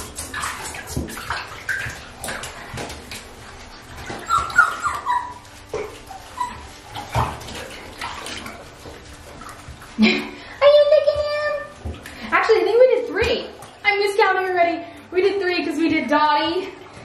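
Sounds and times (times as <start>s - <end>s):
hands scrubbing soapy fur: 0.0s - 17.0s
water splashing in tub: 0.0s - 17.0s
puppies whimpering and whining: 3.7s - 8.5s.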